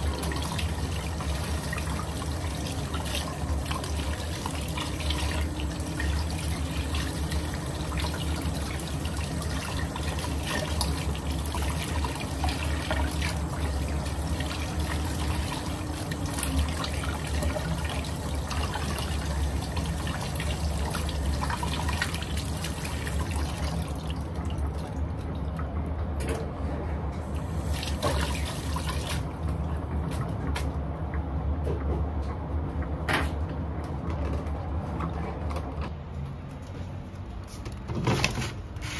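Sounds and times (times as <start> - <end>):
clicks and knocks of kitchen work: 25.8 - 26.9, 30.0 - 36.0, 37.5 - 38.9.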